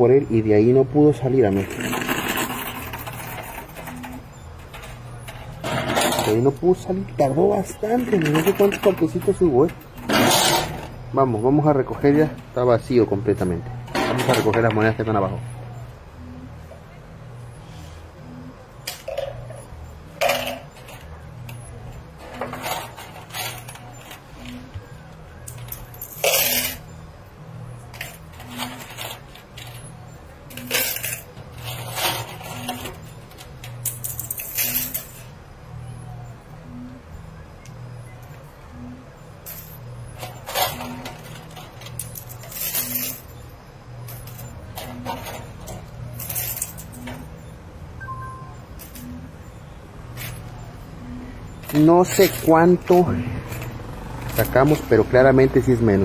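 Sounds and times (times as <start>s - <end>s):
coins clinking and clattering: 1.4s - 11.1s, 18.8s - 24.7s, 25.4s - 26.9s, 27.8s - 35.3s, 39.4s - 47.4s, 48.3s - 49.4s, 50.1s - 50.6s, 51.6s - 55.8s
low electronic tune: 46.8s - 56.0s.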